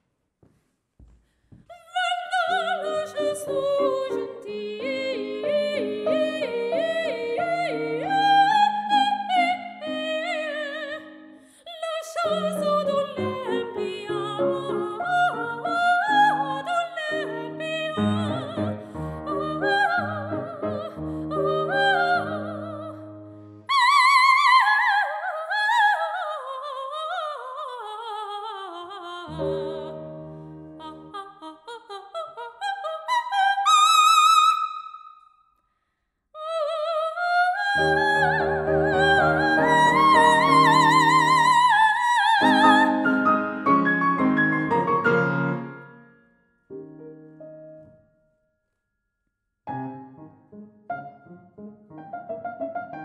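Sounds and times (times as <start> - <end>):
grand piano: 1.7 - 25.0, 28.8 - 31.4, 37.0 - 48.1, 49.7 - 53.0
operatic soprano singing: 1.7 - 34.9, 36.4 - 43.6.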